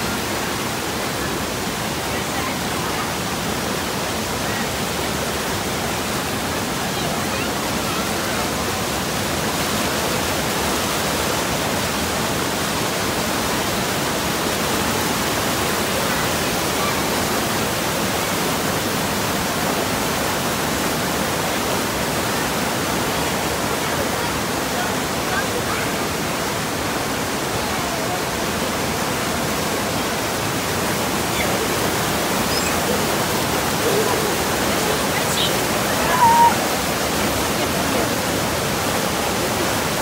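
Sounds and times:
river rapids rushing over rocks: 0.0 - 40.0.

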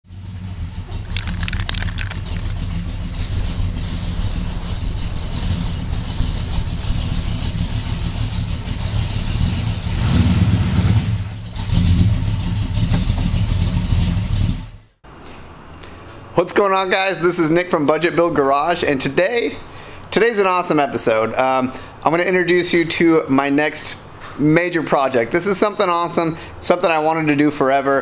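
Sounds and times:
car engine idling and revving: 0.1 - 15.0.

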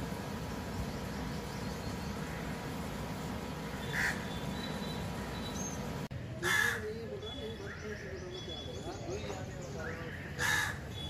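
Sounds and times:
crow cawing: 3.8 - 4.3, 6.4 - 6.8, 10.4 - 10.8.

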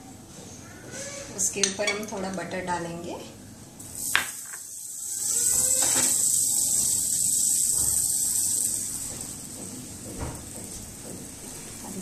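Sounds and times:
flatbread sizzling on a griddle: 3.8 - 12.0.

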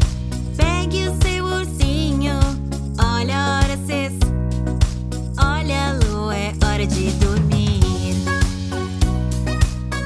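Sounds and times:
children's song singing: 0.6 - 4.2, 5.4 - 8.5
steady drum beat: 6.6 - 10.0.

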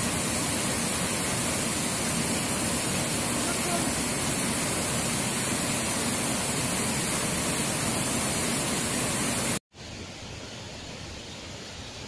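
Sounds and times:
waterfall rushing: 0.0 - 9.6
faint river water rushing: 0.0 - 12.0.

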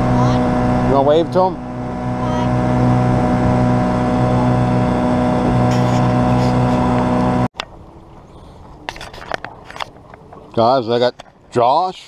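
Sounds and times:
outboard motor running: 0.0 - 7.5
water noise: 0.0 - 12.0.

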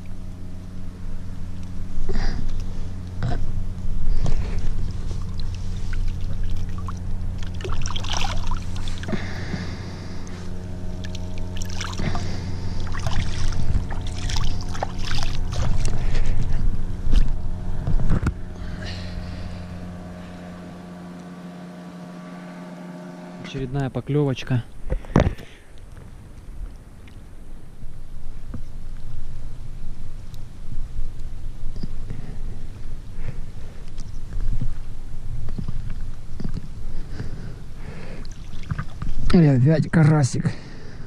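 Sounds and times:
low motor hum: 0.0 - 41.0
water splashing: 4.3 - 17.4, 38.2 - 39.3.

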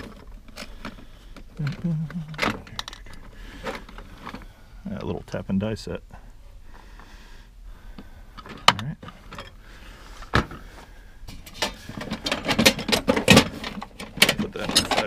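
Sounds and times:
metal hand tools clattering: 11.3 - 15.0.

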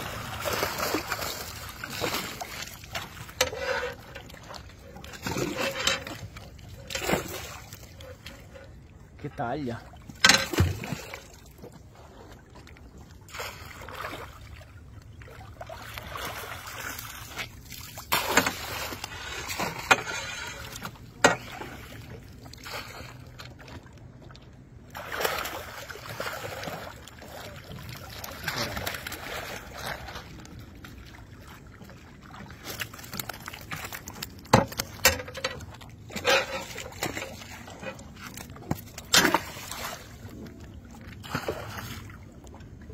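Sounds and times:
fish splashing in net: 0.0 - 3.3, 32.2 - 35.0.

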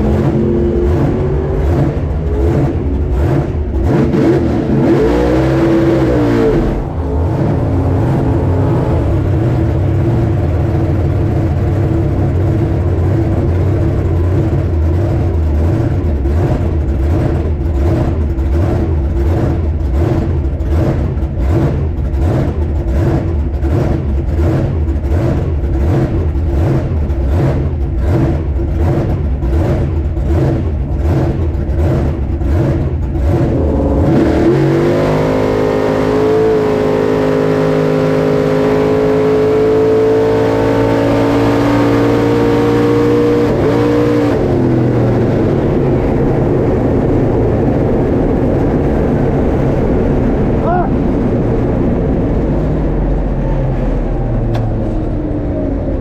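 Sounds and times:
higher sound rising and falling: 4.1 - 10.3
engine idling loudly: 6.4 - 34.7.

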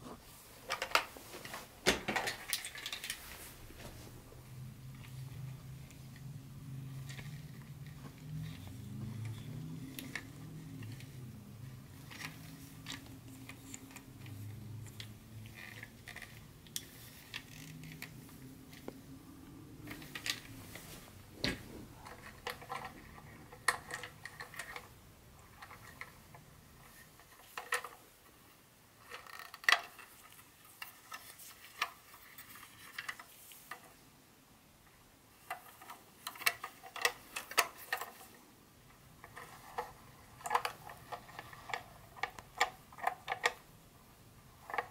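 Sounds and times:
faint low hum: 0.0 - 44.9
plastic toy train clicks and rattles: 2.1 - 3.2, 6.9 - 18.9, 22.0 - 28.1, 28.9 - 34.0, 35.3 - 38.4, 39.2 - 43.7, 44.6 - 44.9.

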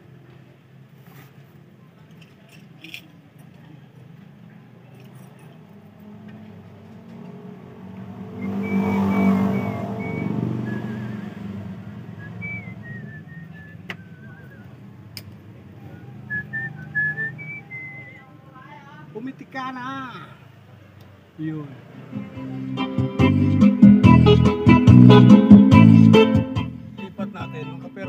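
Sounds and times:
motor vehicle passing: 3.6 - 19.5, 20.3 - 27.2
person whistling a tune: 8.4 - 11.5, 12.2 - 14.8, 16.3 - 18.2.

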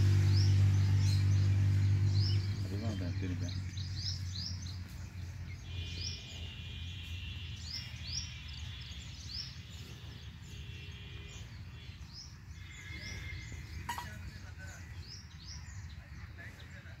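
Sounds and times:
birds chirping: 0.0 - 17.0
bird trilling: 12.6 - 14.4.

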